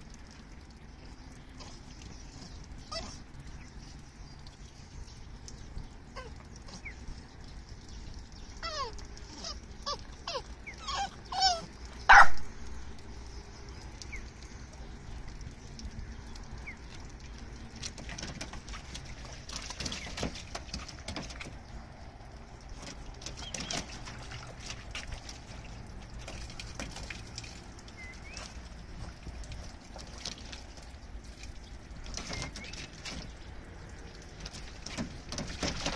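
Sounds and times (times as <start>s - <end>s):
paws scuffling and splashing: 0.0s - 35.9s
puppy whining: 2.8s - 3.2s, 8.6s - 12.3s
dog barking: 12.1s - 12.4s.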